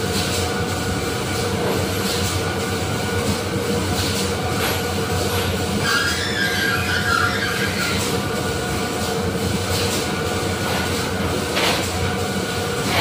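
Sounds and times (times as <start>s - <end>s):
heavy machinery humming: 0.0s - 13.0s
metal-on-metal squeal: 5.8s - 8.1s.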